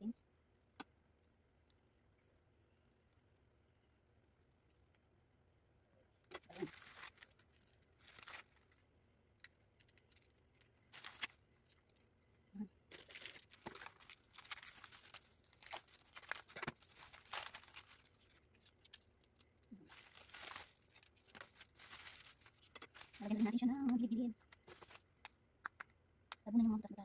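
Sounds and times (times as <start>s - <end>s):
crackers crinkling and rustling: 6.3s - 12.2s, 12.9s - 26.4s.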